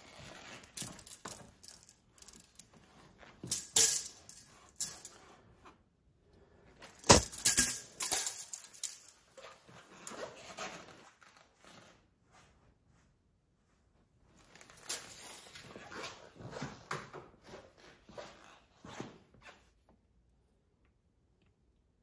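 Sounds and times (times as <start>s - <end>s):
parts and packaging handling: 6.8s - 10.2s.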